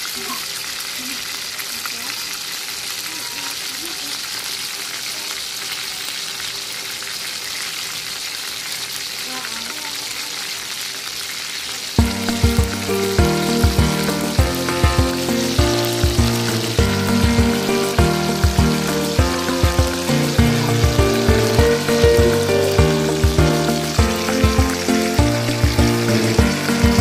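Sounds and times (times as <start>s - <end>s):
fish sizzling in a pan: 0.0s - 27.0s
background music with steady beat: 12.0s - 27.0s.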